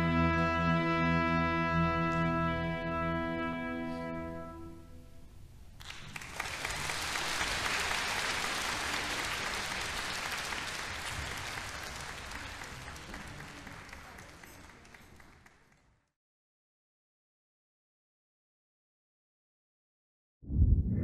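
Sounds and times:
audience applauding: 5.8s - 16.1s.

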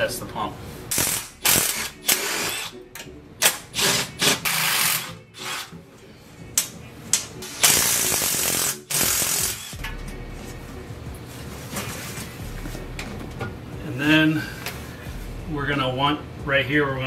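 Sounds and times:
cordless impact driver bursts: 0.9s - 2.7s, 3.4s - 5.7s, 7.5s - 9.8s.

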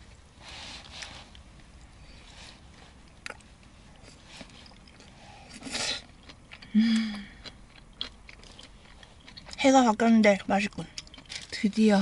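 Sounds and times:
person slurping food: 5.4s - 6.1s.

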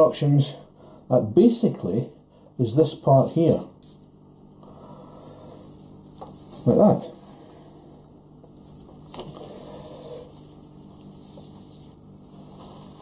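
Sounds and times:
low steady hum: 0.0s - 13.0s
paper and plastic handling: 8.0s - 13.0s.

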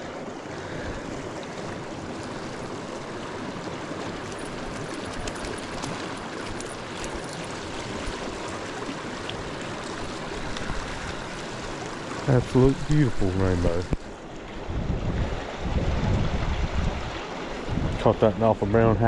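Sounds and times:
creek water rushing: 0.0s - 19.0s.

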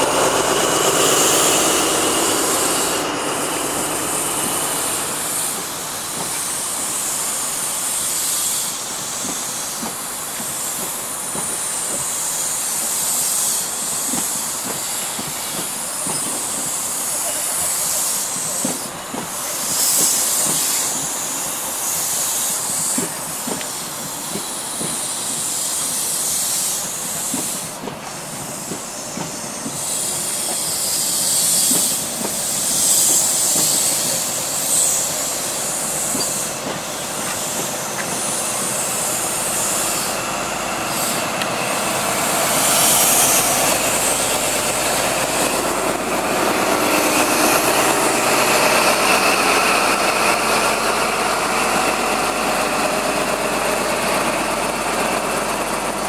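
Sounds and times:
diesel engine: 0.0s - 25.4s, 31.7s - 56.0s
train coaches rolling past: 0.0s - 56.0s
wheels clicking over rail joints: 27.1s - 40.2s.

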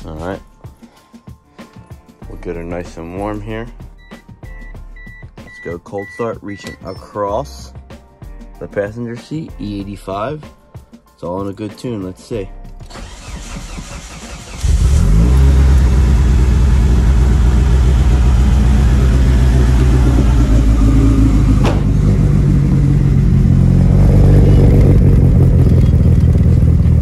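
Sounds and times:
car engine starting and idling: 12.8s - 27.0s.

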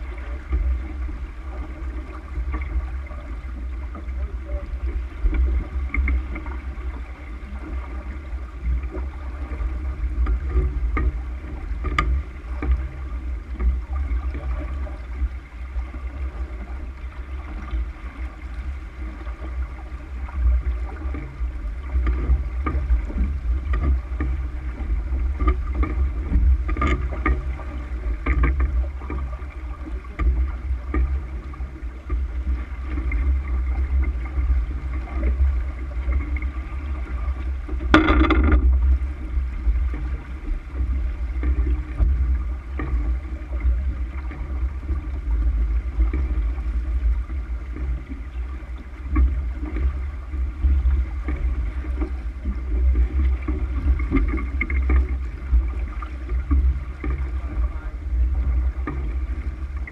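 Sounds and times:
low wind rumble: 0.0s - 59.9s
water rushing along hull: 0.0s - 59.9s
faint knocks: 37.7s - 38.9s.

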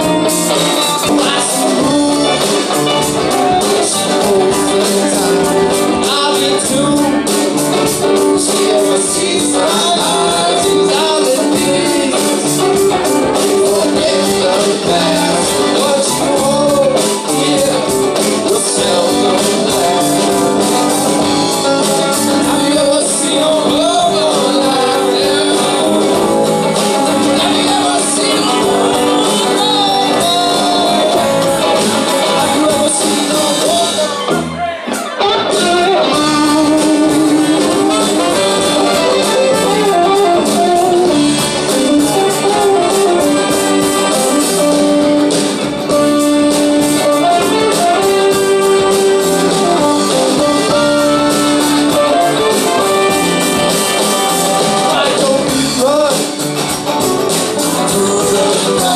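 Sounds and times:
person singing: 0.0s - 56.4s, 57.3s - 58.9s
electric guitar: 0.0s - 58.9s
keyboard: 0.0s - 58.9s
saxophones and trumpet: 35.2s - 55.4s.

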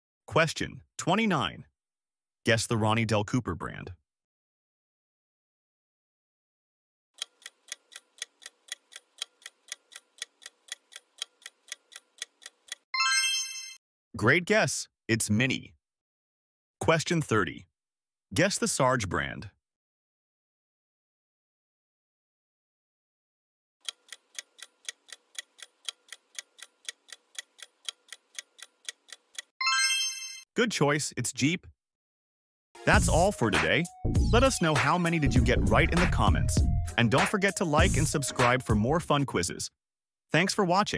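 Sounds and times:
clock ticking: 7.2s - 12.8s, 23.8s - 29.5s, 34.2s - 38.2s
countdown timer ticking: 32.8s - 39.0s.

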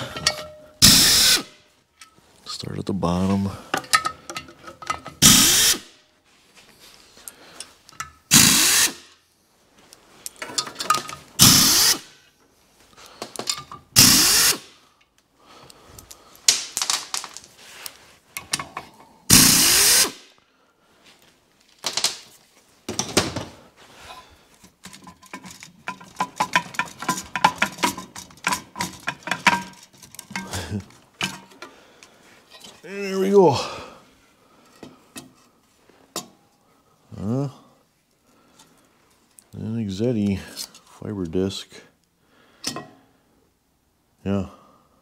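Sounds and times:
power tool bursts: 0.8s - 1.5s, 5.2s - 5.9s, 8.3s - 9.2s, 11.4s - 12.1s, 14.0s - 14.8s, 19.3s - 20.2s.

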